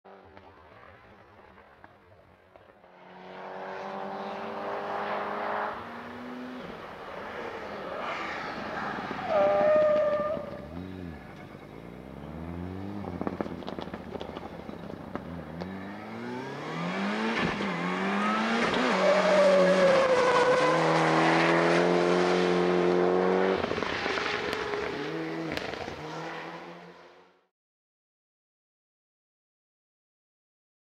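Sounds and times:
car engine revving: 2.8 - 27.4
exhaust cracks: 12.4 - 15.4.

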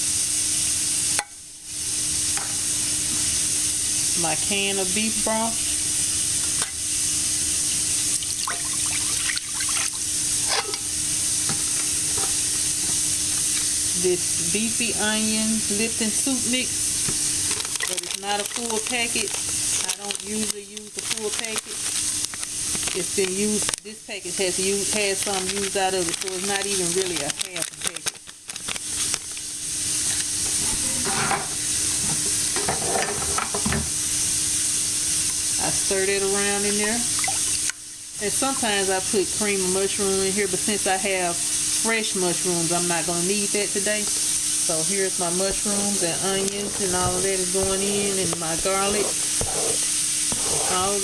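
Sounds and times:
steak sizzling in oil: 0.0 - 51.0
broth pouring into a pot: 5.6 - 14.1, 15.7 - 30.6, 34.0 - 39.5, 43.5 - 45.0
liquid glugs and splashes: 8.2 - 10.0.

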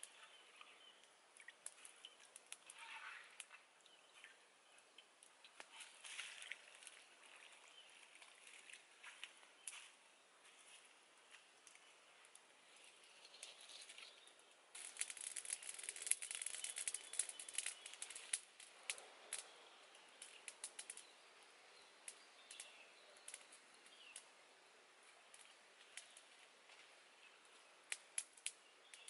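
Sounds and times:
wood fire crackling: 0.0 - 3.6, 11.3 - 21.2, 22.0 - 24.3, 25.0 - 29.0.

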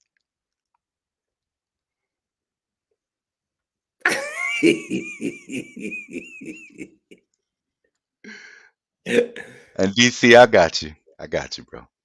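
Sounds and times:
man laughing heartily: 4.0 - 7.3
short breath: 8.2 - 8.8.

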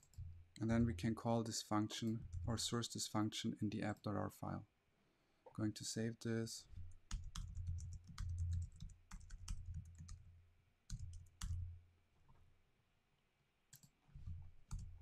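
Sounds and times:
typing on computer keyboard: 7.1 - 10.2, 10.9 - 11.6, 14.7 - 15.0.

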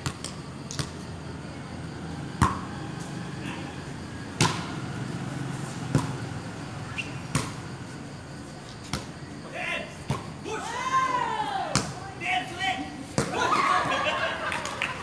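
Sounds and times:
volleyball smacks: 4.4 - 4.7.

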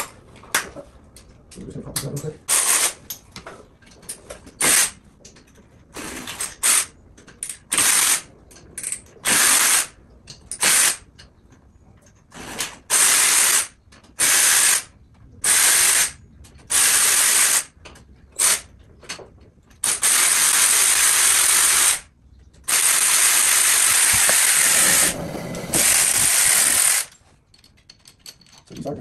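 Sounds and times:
cordless ratchet whirring: 22.6 - 27.2.

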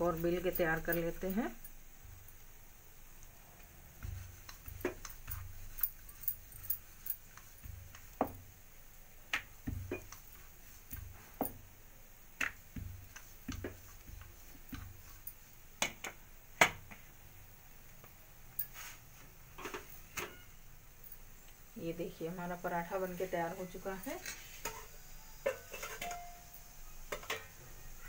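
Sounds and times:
rolling pin rolling dough: 3.1 - 11.7, 12.3 - 16.2.

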